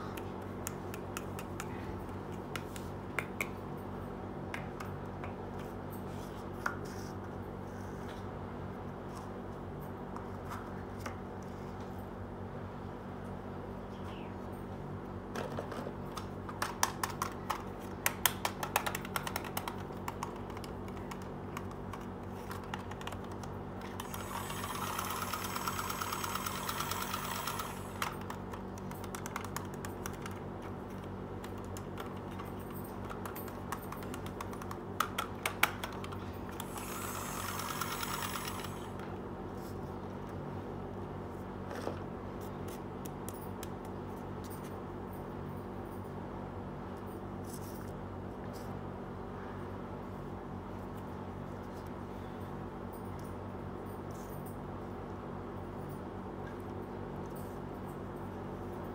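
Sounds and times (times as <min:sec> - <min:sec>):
plastic toys clicking: 0:18.2 - 0:30.4
steady whirring: 0:24.0 - 0:28.3, 0:36.6 - 0:39.0.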